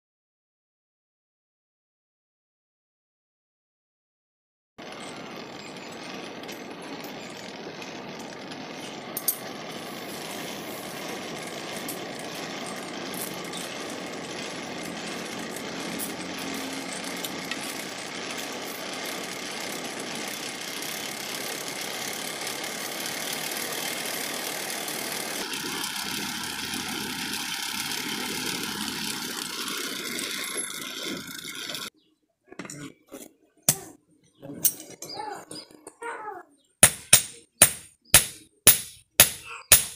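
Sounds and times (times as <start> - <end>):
forge air blower running: 4.8 - 31.9
steel knocking on anvil: 36.8 - 39.9.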